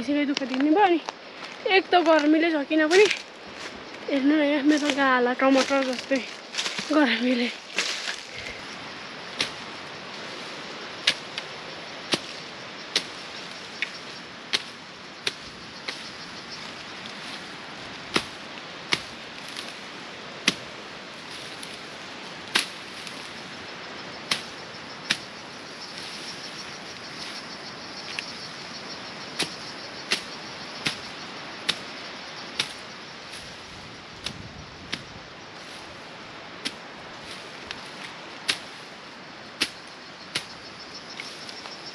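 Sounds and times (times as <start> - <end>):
steady outdoor hiss: 0.0 - 41.9
wood chopping strikes: 20.4 - 20.7.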